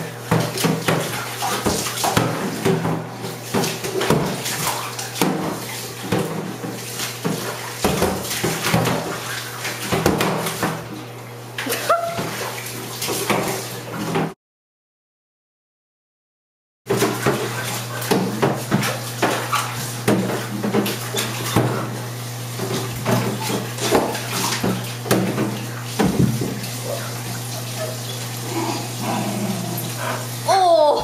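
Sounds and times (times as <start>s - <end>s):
dog splashing in bathtub water: 0.0s - 14.4s, 16.9s - 31.0s
dog whining: 11.6s - 12.3s.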